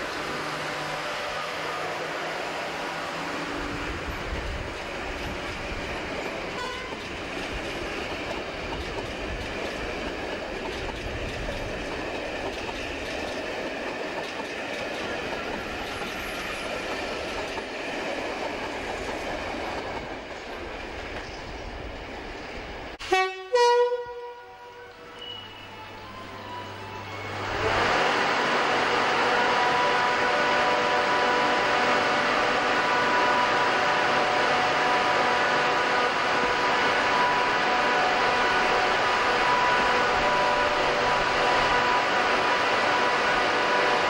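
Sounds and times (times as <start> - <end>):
wheels rumbling on rail: 0.0 - 44.0
locomotive horn blasts: 6.6 - 7.0, 23.0 - 25.5, 29.4 - 35.6.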